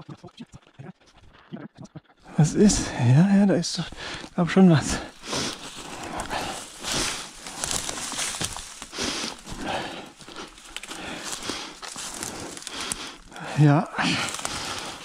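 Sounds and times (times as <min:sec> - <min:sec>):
twigs crunching underfoot: 0:03.8 - 0:15.0.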